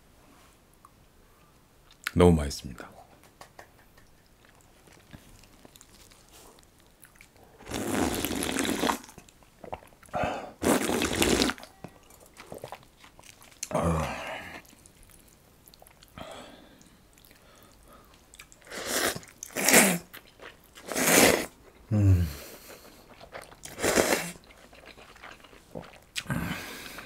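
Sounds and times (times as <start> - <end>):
slurping broth: 7.6 - 14.8, 18.6 - 20.1, 20.8 - 21.6, 22.3 - 27.0.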